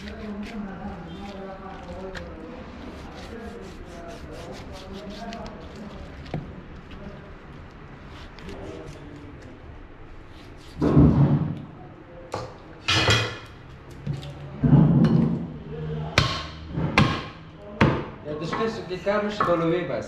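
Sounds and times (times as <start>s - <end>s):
meat cleaver chopping on wood: 16.2s - 18.7s.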